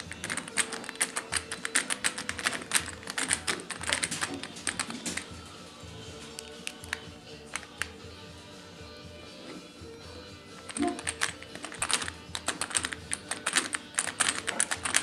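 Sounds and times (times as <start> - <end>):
screwdriver clicking and ticking: 0.0 - 5.3, 6.4 - 7.9, 10.6 - 15.0.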